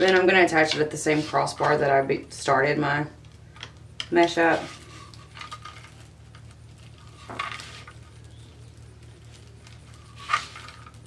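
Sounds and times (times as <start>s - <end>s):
faint steady low hum: 0.0s - 11.0s
mesh rustling: 4.4s - 11.0s.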